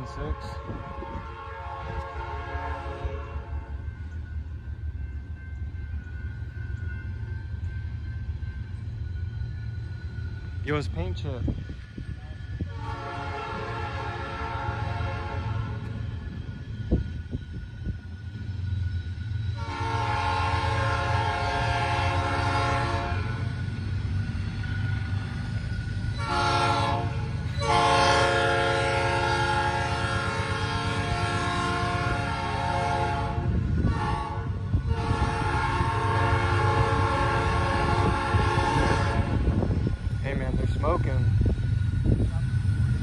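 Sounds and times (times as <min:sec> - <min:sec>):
locomotive air horn blasts: 0:00.0 - 0:03.7, 0:12.7 - 0:15.9, 0:19.5 - 0:23.4, 0:26.2 - 0:39.6
train rumbling: 0:00.0 - 0:43.0.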